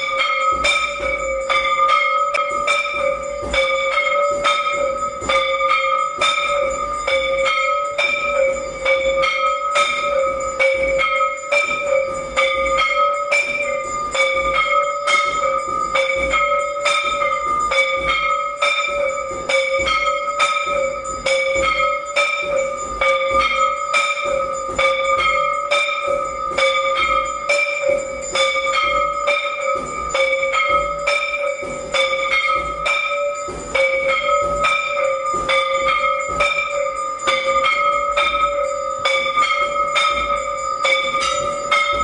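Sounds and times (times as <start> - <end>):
temple bells ringing: 0.0 - 42.0.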